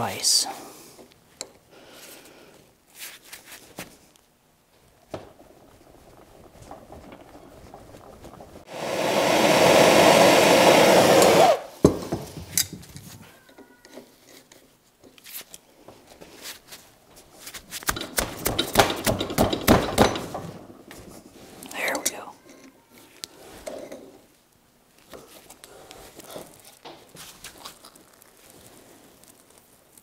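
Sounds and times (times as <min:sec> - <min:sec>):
loud rushing hiss: 0:08.7 - 0:11.7
metal clicks and knocks: 0:17.8 - 0:20.7.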